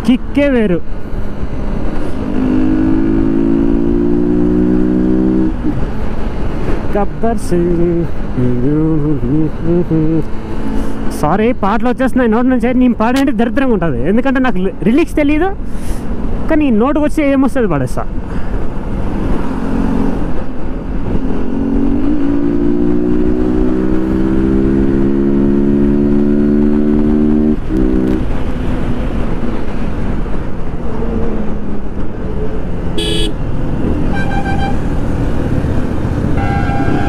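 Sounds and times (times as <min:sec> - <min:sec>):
wind and road rush: 0:00.0 - 0:37.0
motorcycle engine accelerating: 0:01.2 - 0:06.8, 0:21.2 - 0:29.9
traffic horns honking: 0:27.6 - 0:28.2, 0:33.0 - 0:35.0, 0:36.2 - 0:37.0.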